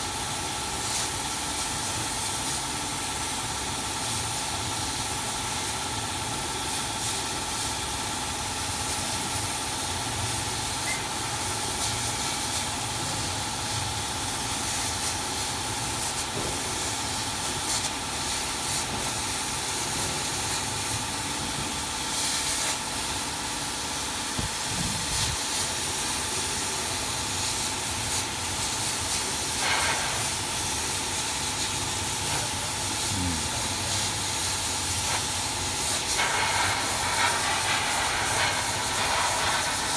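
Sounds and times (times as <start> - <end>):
laser cutter airy hiss: 0.0 - 39.9
laser cutter whine: 7.6 - 15.0.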